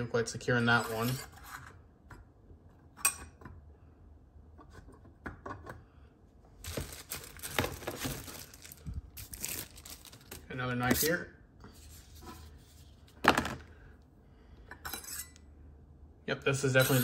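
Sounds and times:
paper and plastic crinkling: 0:06.6 - 0:10.6.

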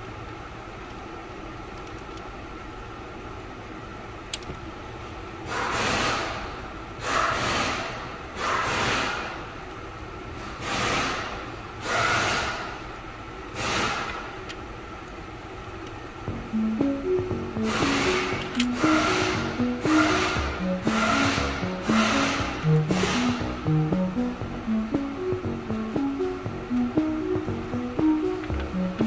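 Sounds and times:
music: 0:16.3 - 0:29.0.

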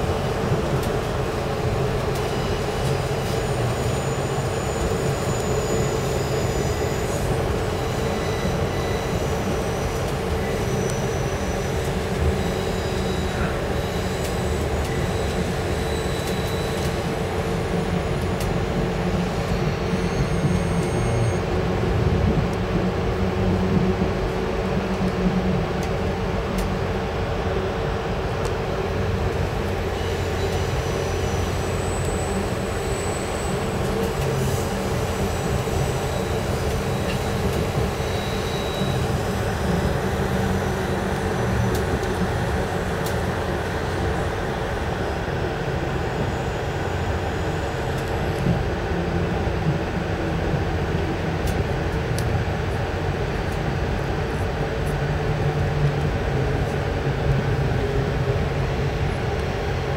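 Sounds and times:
train wheels rumbling on rails: 0:00.0 - 0:59.9
faint high-pitched squeals: 0:02.2 - 0:21.5.

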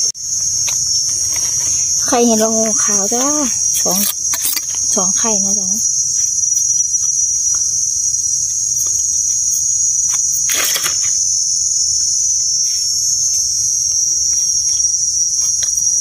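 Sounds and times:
high-pitched insect drone: 0:00.0 - 0:16.0.

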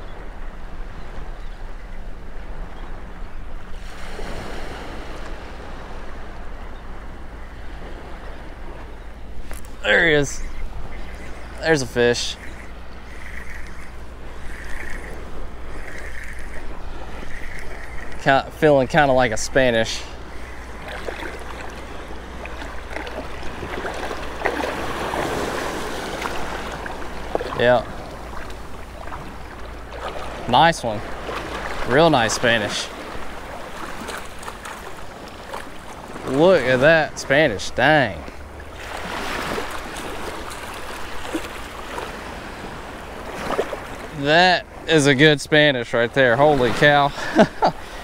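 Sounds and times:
surf waves lapping: 0:00.0 - 0:48.0
water splashing and trickling: 0:07.3 - 0:48.0.

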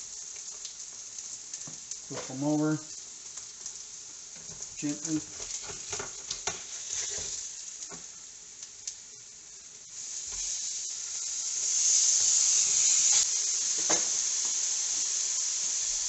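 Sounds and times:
fish fillets sizzling: 0:00.0 - 0:16.0.

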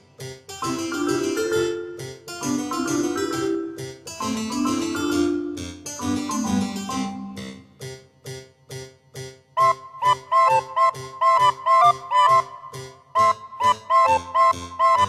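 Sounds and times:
keyboard melody of held notes: 0:00.0 - 0:08.0, 0:09.6 - 0:15.0
plucked chords: 0:00.5 - 0:07.8.

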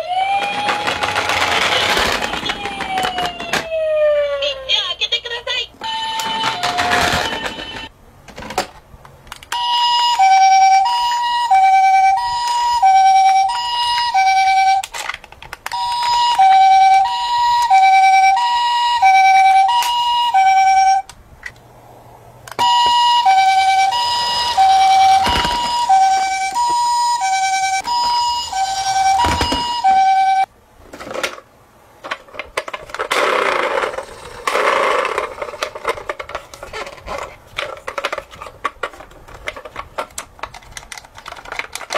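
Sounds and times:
toy siren two-tone wail: 0:00.0 - 0:04.8, 0:05.8 - 0:07.9, 0:09.5 - 0:14.9, 0:15.7 - 0:21.1, 0:22.6 - 0:30.5.

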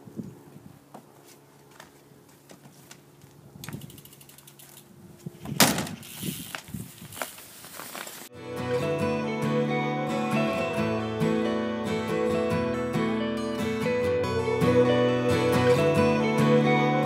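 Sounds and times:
bike rattling: 0:02.5 - 0:08.3
bicycle freewheel ratchet clicking: 0:03.6 - 0:05.0, 0:05.8 - 0:07.5.

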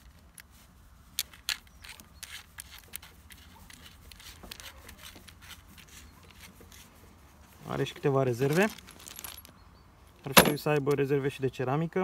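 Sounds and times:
plastic and metal parts clicking: 0:01.1 - 0:06.5.

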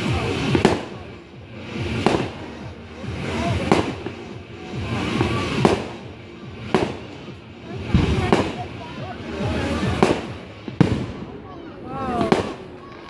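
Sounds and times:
firework shells bursting: 0:00.0 - 0:02.5.

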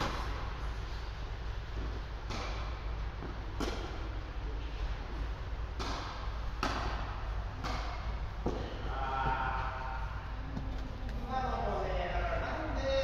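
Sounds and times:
tennis ball struck by rackets: 0:00.0 - 0:00.5, 0:01.7 - 0:04.2, 0:05.7 - 0:09.4
steady background hiss: 0:00.0 - 0:13.0.

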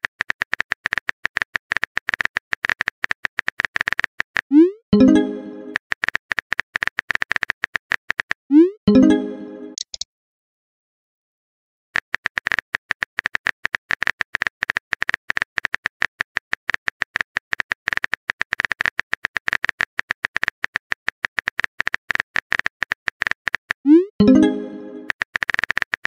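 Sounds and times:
keyboard typing clicks: 0:00.2 - 0:10.0.

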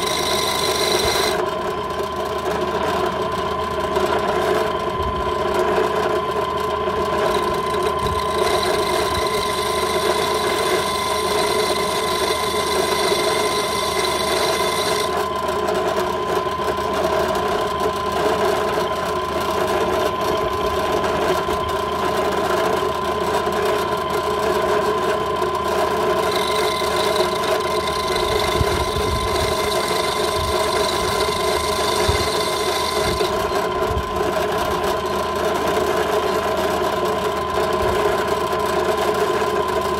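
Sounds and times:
high-pitched whine: 0:00.0 - 0:02.2, 0:04.6 - 0:15.4, 0:24.0 - 0:35.2
drill press motor running: 0:00.0 - 0:39.9.

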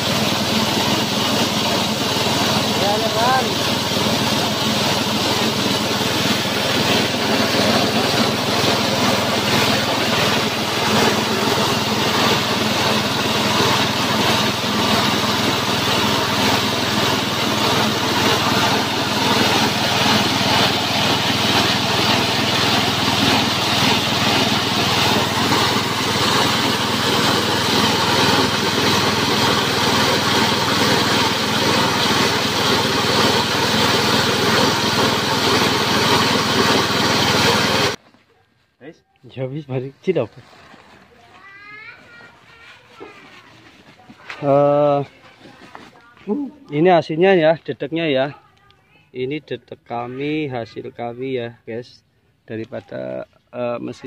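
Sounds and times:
grinder hissing and rattling: 0:00.0 - 0:38.0
small petrol engine running: 0:00.0 - 0:38.0.

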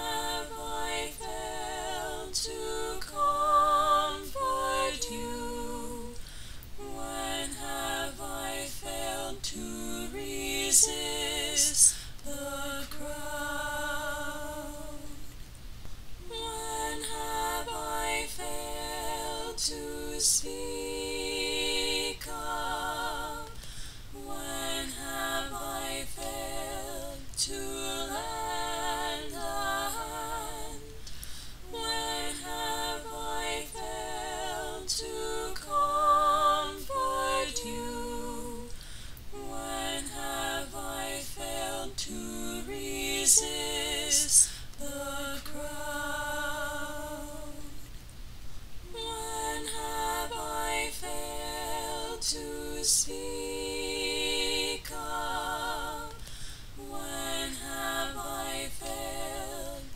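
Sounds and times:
person singing with vibrato: 0:00.0 - 0:15.4, 0:16.2 - 0:47.9.

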